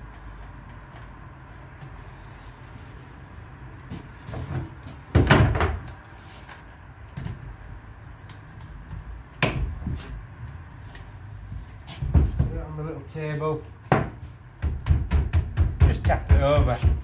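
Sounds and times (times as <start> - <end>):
tools knocking on wooden workbench: 13.9 - 17.0.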